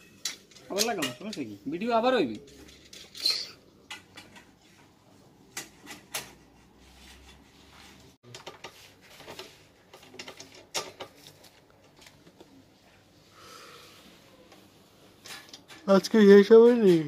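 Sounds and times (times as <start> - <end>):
metal parts clicking and knocking: 0.0 - 1.5, 2.3 - 4.6.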